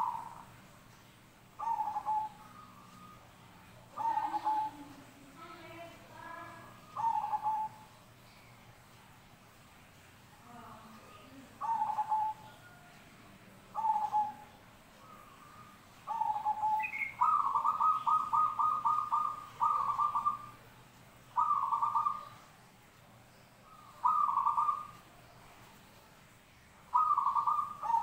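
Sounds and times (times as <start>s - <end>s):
dove cooing: 0.0s - 0.5s, 1.6s - 7.9s, 11.4s - 12.8s, 13.7s - 20.6s, 21.4s - 22.5s, 23.7s - 25.0s, 26.9s - 28.0s.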